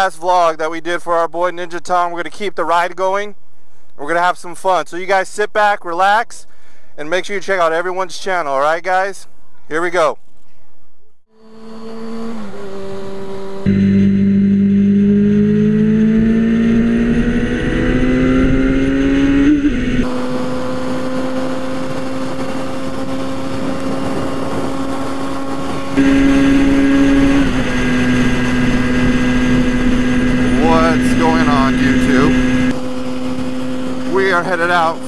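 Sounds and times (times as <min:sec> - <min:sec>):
motorcycle engine at speed: 0:11.3 - 0:35.0
wind noise: 0:16.0 - 0:34.1.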